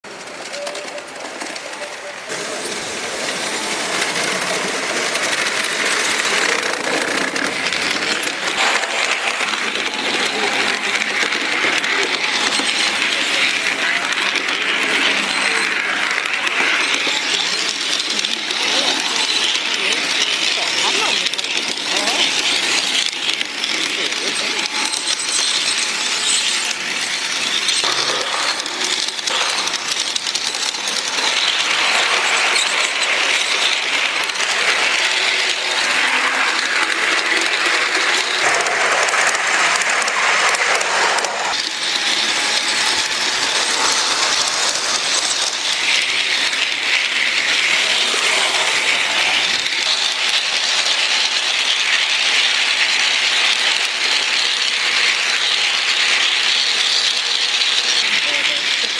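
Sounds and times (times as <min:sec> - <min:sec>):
model train wheels rattling on rails: 0:00.0 - 0:58.9.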